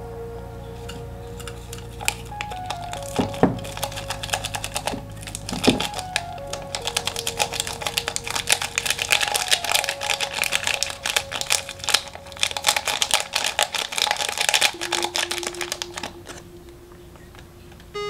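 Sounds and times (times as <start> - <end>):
faint background music: 0.0 - 18.0
foil sachet crinkling: 1.4 - 16.5.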